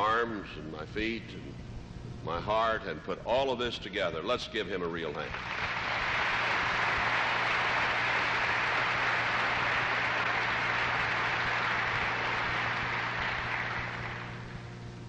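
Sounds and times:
congregation applauding: 5.3 - 14.6.

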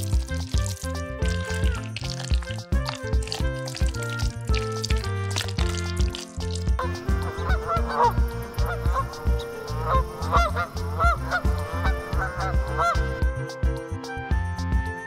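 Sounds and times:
music with low pulsing beat: 0.0 - 15.0
waterfowl calls: 6.8 - 13.1.

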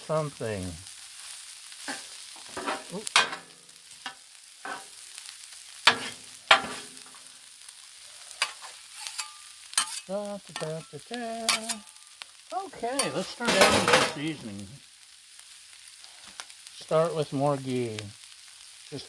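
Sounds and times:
food sizzling: 0.0 - 19.0
metal spatulas scraping on griddle: 1.8 - 7.2, 8.2 - 12.1, 12.9 - 14.2.

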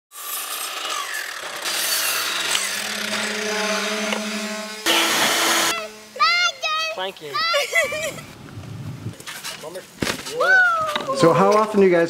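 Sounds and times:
palm sander on wood: 0.1 - 7.5.

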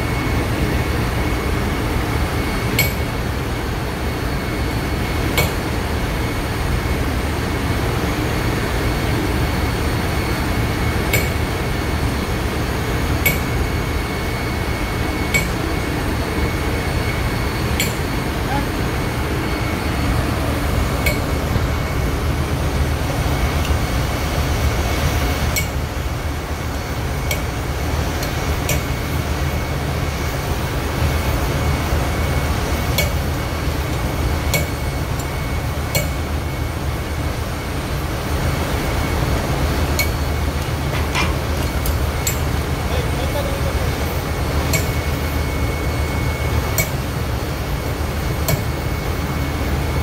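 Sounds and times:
engine room machinery rumble: 0.0 - 50.0
sharp metallic clicks: 13.3 - 13.5, 15.3 - 15.6.

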